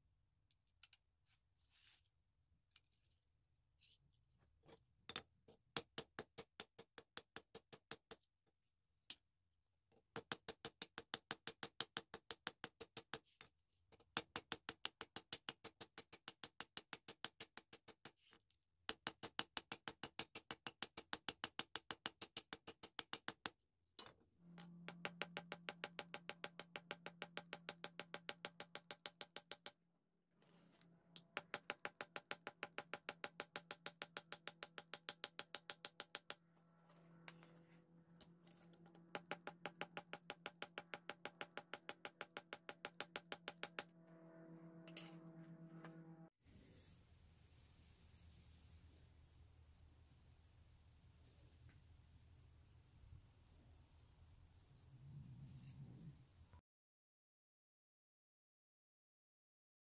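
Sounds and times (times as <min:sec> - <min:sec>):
held low synth tone: 0:43.9 - 0:46.3.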